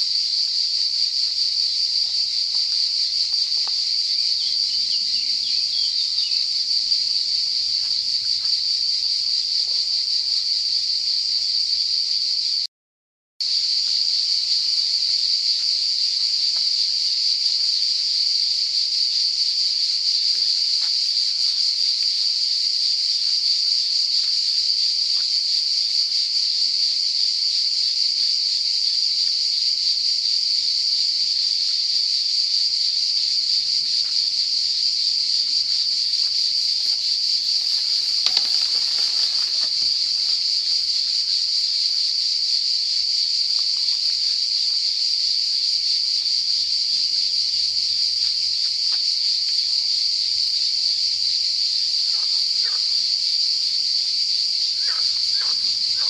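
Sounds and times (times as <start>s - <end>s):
cicadas buzzing: 0.0s - 12.7s, 13.4s - 56.0s
brief rustle: 36.9s - 40.4s.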